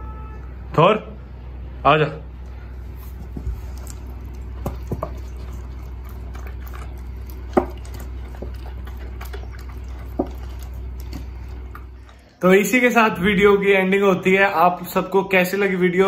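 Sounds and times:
dog chewing and lapping: 0:02.9 - 0:13.6.

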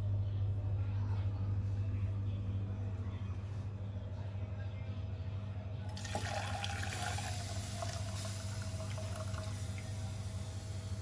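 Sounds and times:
steady low hum: 0:00.0 - 0:11.0
liquid pouring into water: 0:05.9 - 0:11.0.

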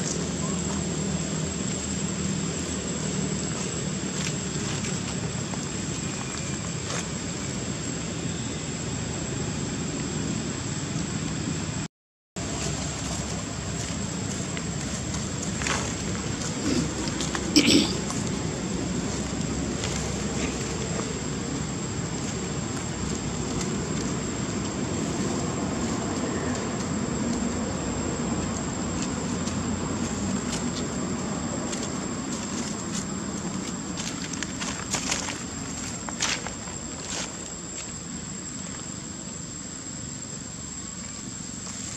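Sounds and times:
outdoor background rumble: 0:00.0 - 0:41.9
dry leaves crackling: 0:12.4 - 0:27.8.

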